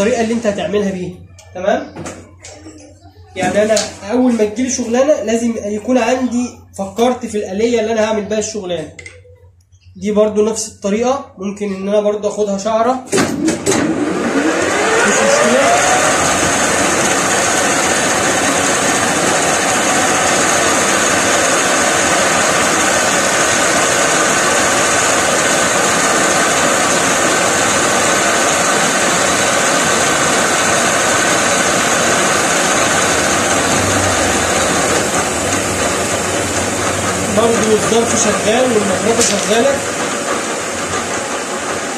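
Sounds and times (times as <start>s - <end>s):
metal lathe whining: 13.6s - 41.9s.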